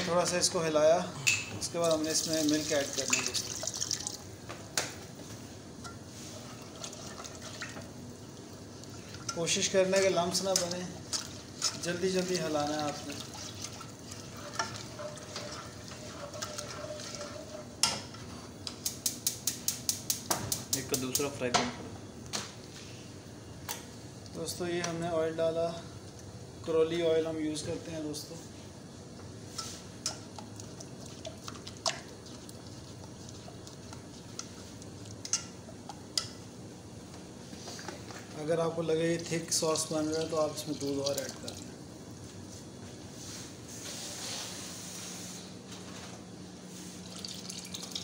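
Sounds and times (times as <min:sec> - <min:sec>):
spoon scraping a saucepan: 0:14.2 - 0:18.4.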